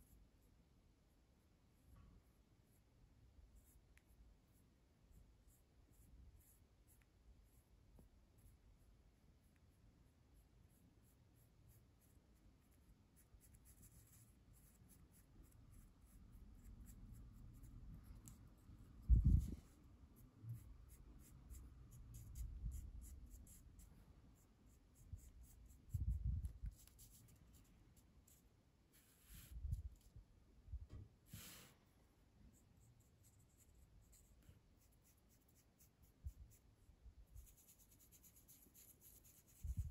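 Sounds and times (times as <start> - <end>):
brush scratching on paper: 10.4 - 30.1, 37.3 - 39.9.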